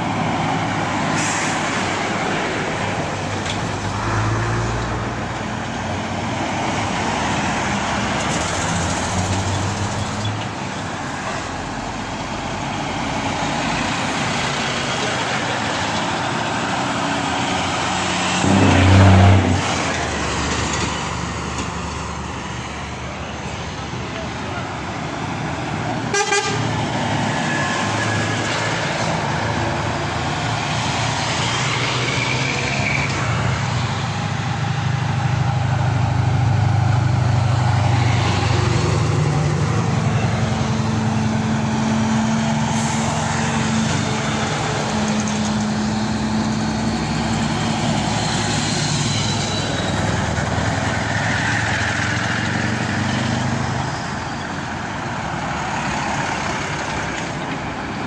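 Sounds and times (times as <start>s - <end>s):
lorry diesel engines passing: 0.0s - 58.0s
horn blasts: 18.4s - 19.7s, 26.1s - 26.7s.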